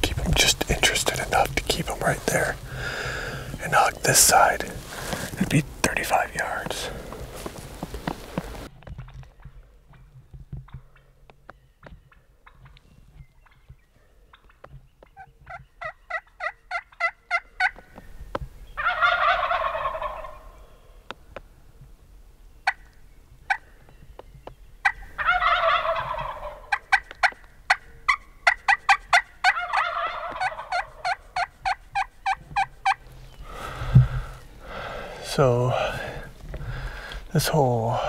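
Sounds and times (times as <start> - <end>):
turkeys gobbling: 12.4 - 12.8, 14.3 - 17.9, 18.8 - 20.8, 23.5 - 23.7, 24.8 - 35.1
turkey yelps: 18.8 - 20.6, 24.8 - 33.0.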